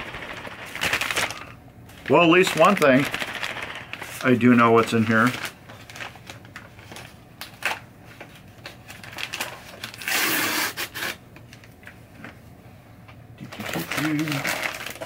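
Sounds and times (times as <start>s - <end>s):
paper packaging rustling: 0.0s - 11.7s, 13.4s - 15.0s
paper tearing: 9.1s - 11.2s, 13.6s - 15.0s.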